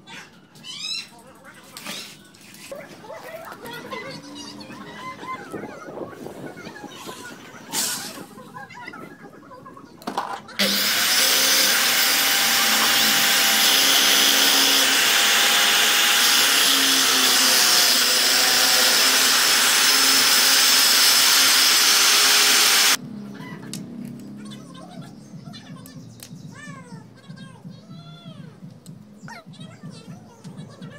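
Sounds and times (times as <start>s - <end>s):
circular saw cutting board: 10.6s - 23.0s.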